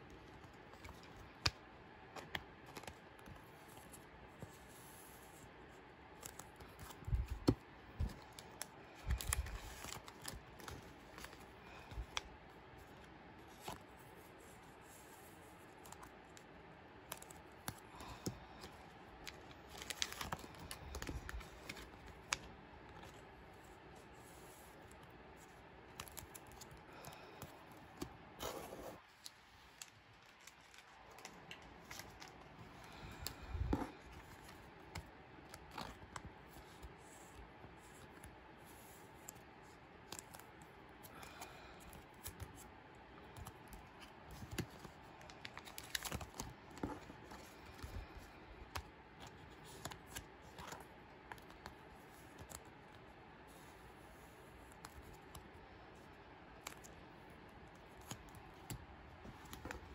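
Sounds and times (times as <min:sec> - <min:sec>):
plastic sleeves crinkling: 0:06.1 - 0:14.2, 0:17.1 - 0:23.7, 0:27.8 - 0:38.3, 0:43.3 - 0:52.9.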